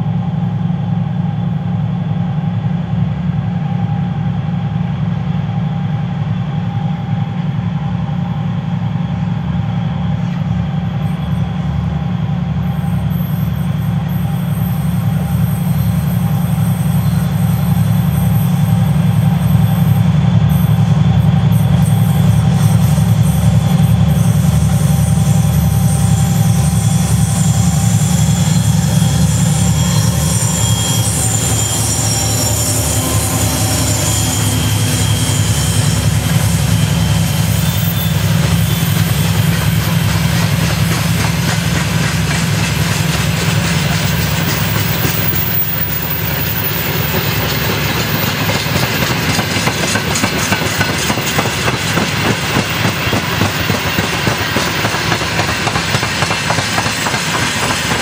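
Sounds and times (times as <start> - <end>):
diesel locomotive engine throbbing: 0.0 - 58.0
train wheels clacking over rail joints: 21.4 - 58.0.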